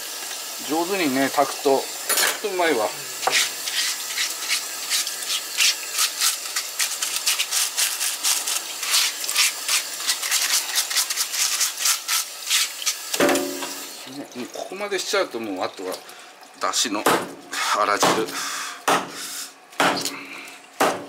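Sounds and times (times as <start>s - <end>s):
blade scraping fish fillet: 3.2s - 13.0s.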